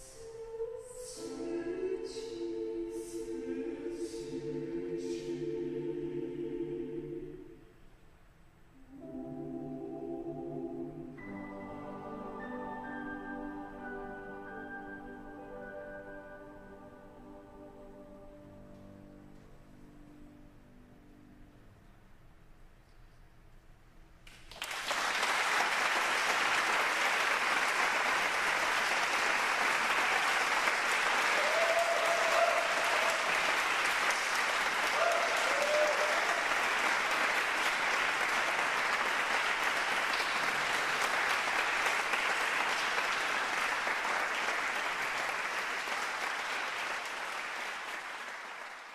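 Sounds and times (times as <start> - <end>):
audience applause: 24.3 - 48.9.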